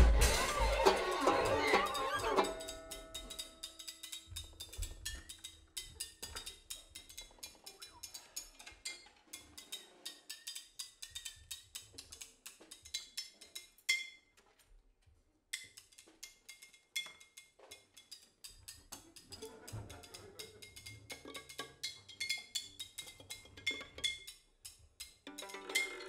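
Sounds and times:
ringing drum hit: 0:00.0 - 0:03.2.

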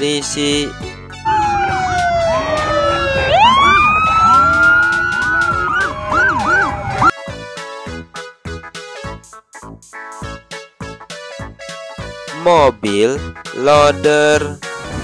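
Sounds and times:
police motorcycle sirens wailing: 0:01.2 - 0:07.1.

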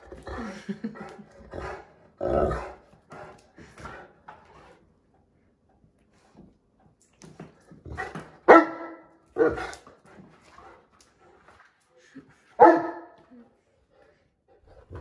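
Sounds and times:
dog barking: 0:08.5 - 0:09.7, 0:12.6 - 0:13.2.

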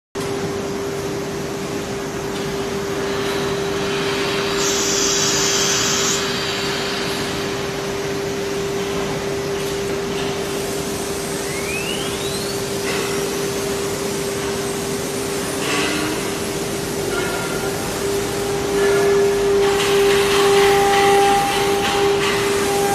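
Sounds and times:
router spindle high tone: 0:17.1 - 0:22.9.

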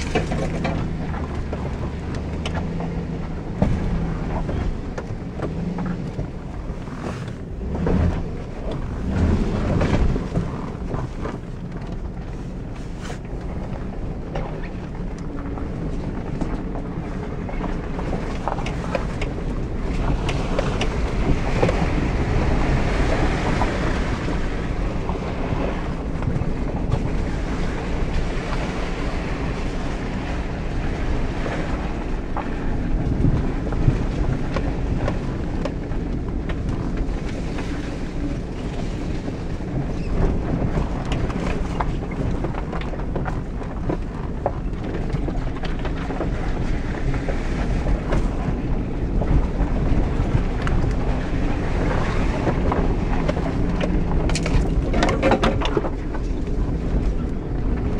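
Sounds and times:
car body knocks and rattles: 0:00.0 - 0:06.5
engine and tires rumbling: 0:00.0 - 0:57.9.

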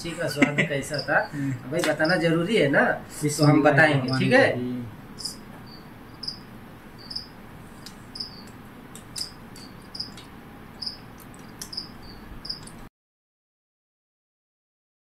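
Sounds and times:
cricket chirping: 0:00.0 - 0:02.4, 0:03.4 - 0:04.5, 0:05.2 - 0:07.4, 0:08.1 - 0:12.8.

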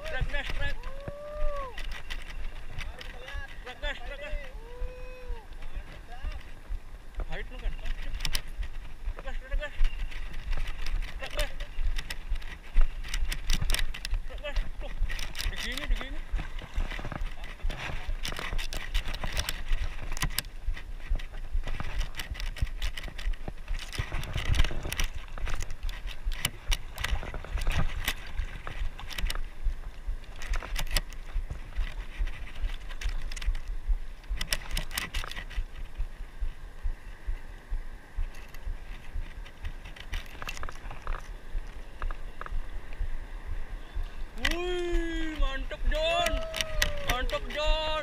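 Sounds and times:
wind buffeting microphone: 0:00.0 - 0:48.0
fishing reel clicking and rattling: 0:07.4 - 0:08.6, 0:10.1 - 0:29.5, 0:30.2 - 0:35.7.

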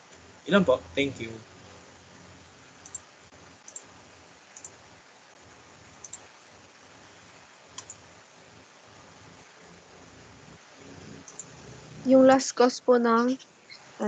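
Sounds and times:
faint background hiss: 0:00.0 - 0:14.0
computer mouse clicking: 0:02.8 - 0:03.0, 0:03.6 - 0:03.9, 0:04.5 - 0:04.8, 0:06.0 - 0:06.3, 0:07.7 - 0:08.0, 0:11.2 - 0:11.6.

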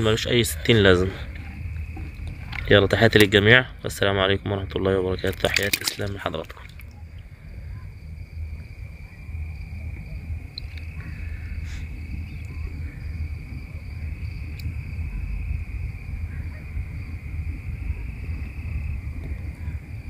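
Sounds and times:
crickets trilling: 0:00.0 - 0:20.0
low rumble: 0:00.0 - 0:20.0
faint clicks: 0:10.5 - 0:11.2, 0:14.5 - 0:14.8.

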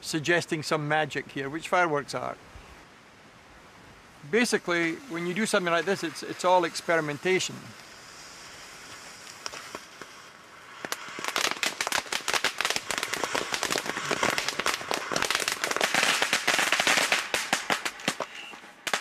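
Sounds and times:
firework crackling and fizzing: 0:04.2 - 0:19.0.

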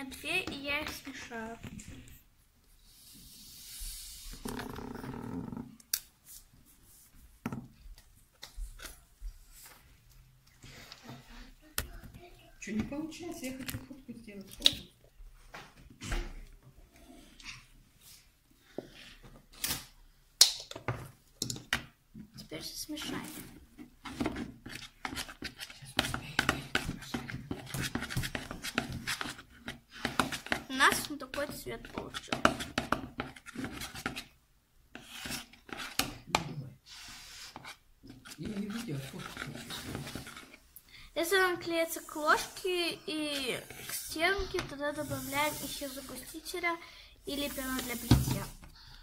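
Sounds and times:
spoon scraping plastic bowl: 0:27.5 - 0:34.4, 0:37.5 - 0:40.6.

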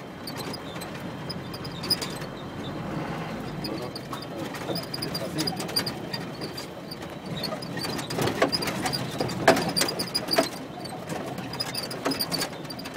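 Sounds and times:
vehicle body rattling and knocking: 0:00.0 - 0:02.8, 0:03.4 - 0:12.9
engine and road rumble: 0:00.0 - 0:12.9.

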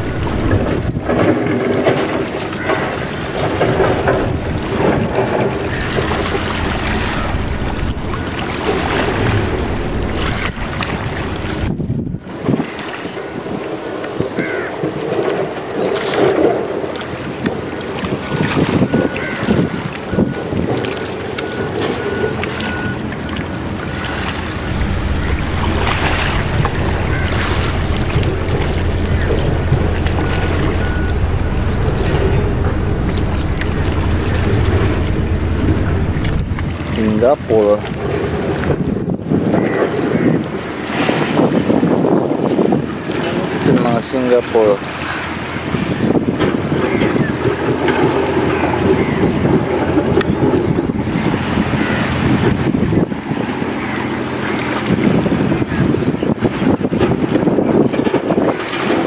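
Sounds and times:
waterfront noise: 0:00.0 - 0:59.0
wind buffeting microphone: 0:00.0 - 0:59.0.

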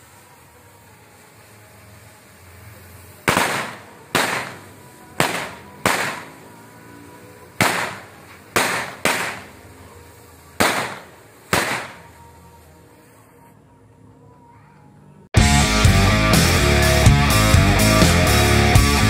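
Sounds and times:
firecrackers banging: 0:00.0 - 0:13.2.

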